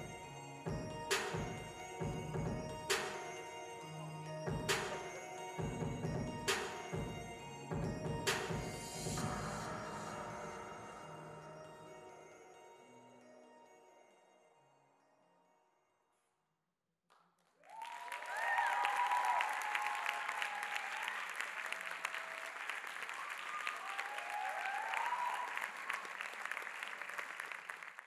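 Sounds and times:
dance music: 0.0 - 12.6
people cheering: 17.6 - 27.9
audience applause: 17.6 - 28.0.

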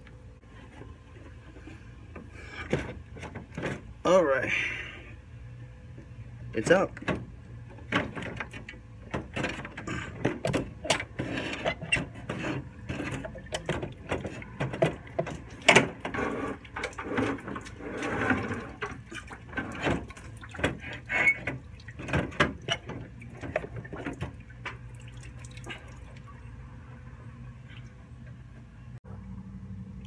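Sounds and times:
radiator knocks clicks and scrapes: 0.5 - 4.0, 7.0 - 24.9.

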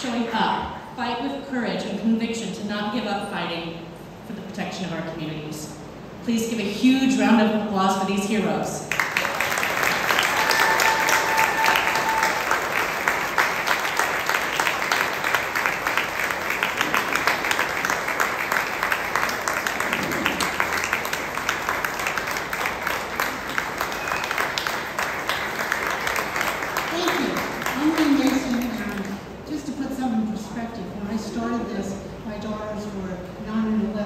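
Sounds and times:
audience applauding: 8.9 - 29.3
person cheering: 10.2 - 12.6.

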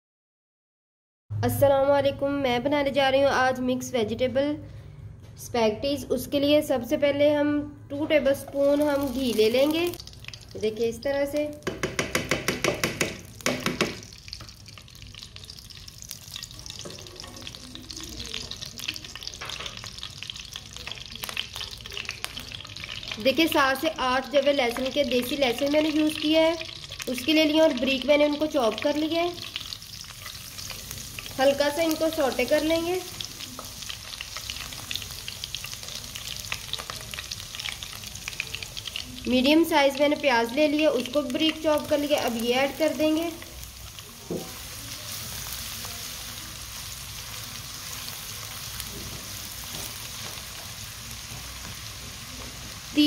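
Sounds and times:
ghee sizzling in a wok: 8.3 - 53.0
spoon knocking on wok: 11.6 - 14.1.

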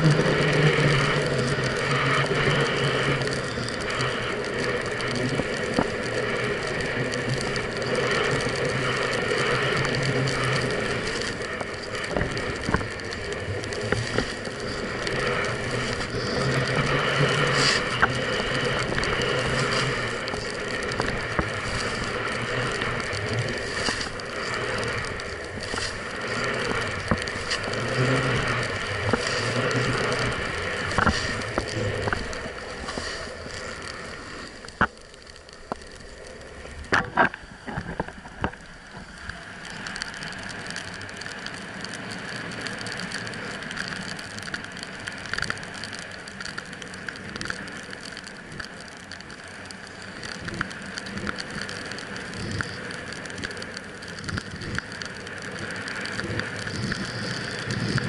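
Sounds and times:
snowboard scraping over snow: 0.0 - 35.1, 49.9 - 58.0.

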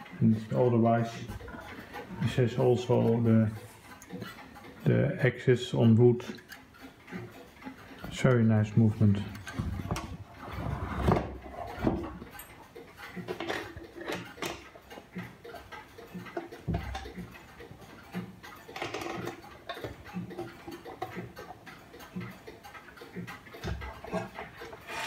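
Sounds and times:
clock ticking: 0.0 - 10.5, 11.3 - 25.0
handling knocks and clicks: 5.8 - 25.0.

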